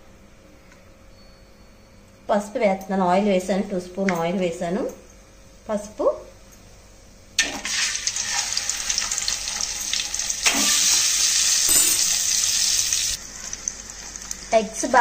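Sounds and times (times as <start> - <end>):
hot oil sizzling: 7.4 - 15.0.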